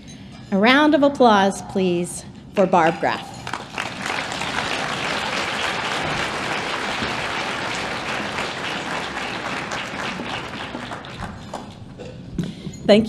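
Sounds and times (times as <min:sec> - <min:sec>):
large audience applauding: 0:03.4 - 0:12.0.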